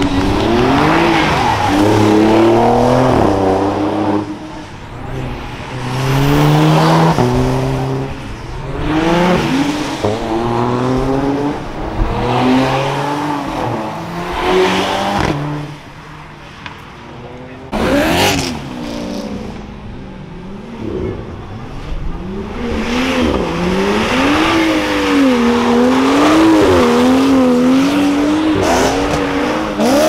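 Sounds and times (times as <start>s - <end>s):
car engines revving and passing: 0.0s - 30.0s.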